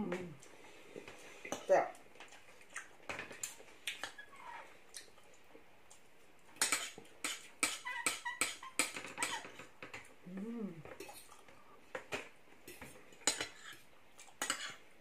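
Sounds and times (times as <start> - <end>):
cutlery scraping on plates: 6.6 - 10.0, 12.7 - 14.8.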